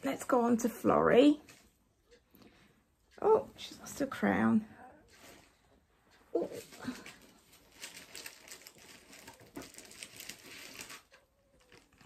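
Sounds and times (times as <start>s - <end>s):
rustling and crinkling: 0.1s - 1.8s, 4.9s - 12.0s.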